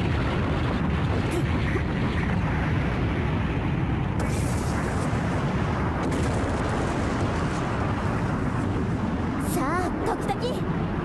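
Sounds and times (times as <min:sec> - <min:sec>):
heavy explosion rumble: 0:00.0 - 0:11.0.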